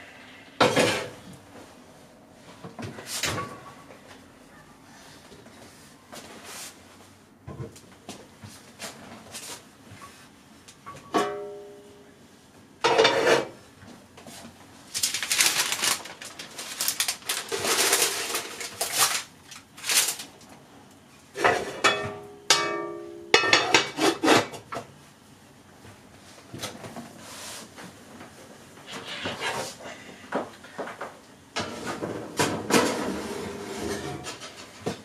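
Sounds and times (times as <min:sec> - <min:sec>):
parchment paper rustling: 0:14.4 - 0:20.5.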